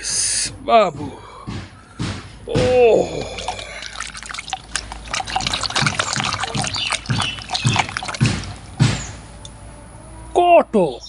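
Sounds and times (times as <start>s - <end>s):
water splashing in steel bowl: 2.6s - 9.5s.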